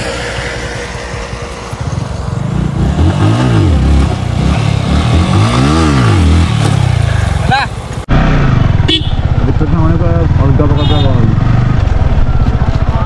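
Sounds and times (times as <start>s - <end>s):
motorcycle engine revving: 0.0s - 13.0s.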